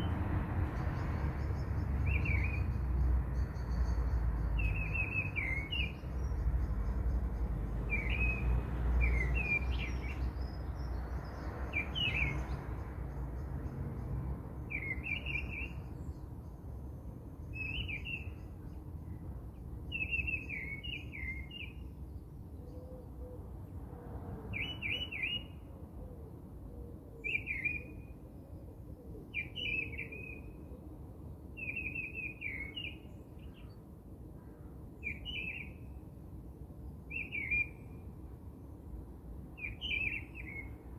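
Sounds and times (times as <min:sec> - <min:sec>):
small bird chirping: 0:01.0 - 0:13.5.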